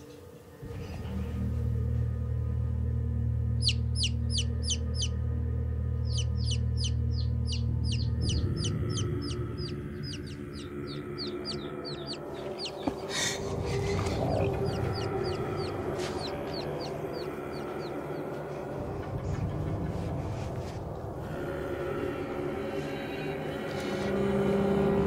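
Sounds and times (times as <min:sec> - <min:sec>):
low steady drone: 0:00.0 - 0:25.0
baby chick peeping: 0:03.6 - 0:05.2, 0:06.0 - 0:18.4.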